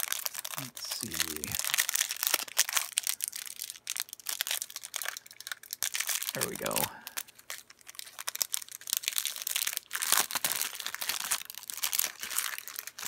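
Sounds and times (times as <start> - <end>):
plastic wrapper crinkling and tearing: 0.0 - 13.0.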